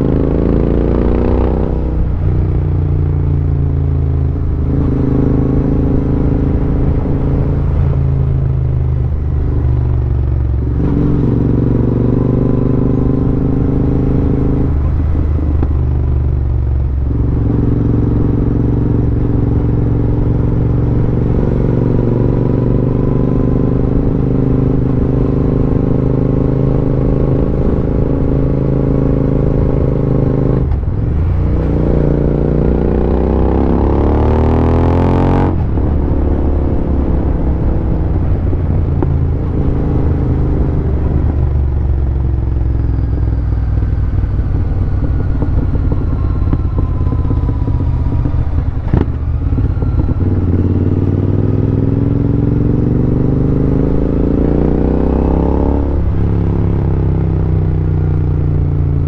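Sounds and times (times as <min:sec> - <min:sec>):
motorcycle engine revving: 0:00.0 - 0:59.0.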